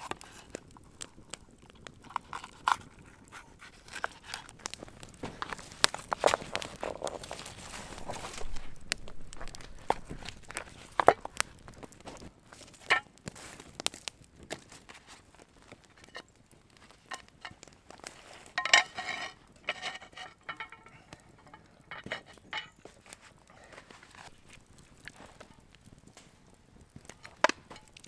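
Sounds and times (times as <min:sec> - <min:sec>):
wood fire crackling: 0:00.0 - 0:28.0
rocks clinking and knocking: 0:03.8 - 0:14.8, 0:15.6 - 0:28.0
slate slab clattering: 0:18.5 - 0:22.8.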